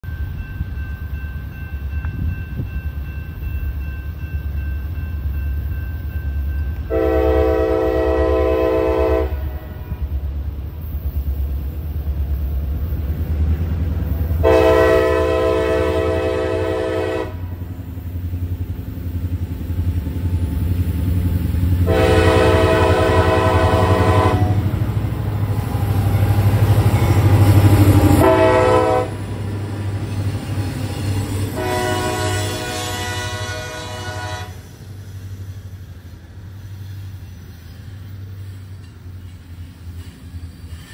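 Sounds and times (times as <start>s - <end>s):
locomotive engine rumble: 0.0s - 40.9s
train horn blasts: 6.9s - 10.1s, 14.4s - 17.6s, 21.8s - 24.8s, 27.0s - 29.4s, 31.3s - 34.7s.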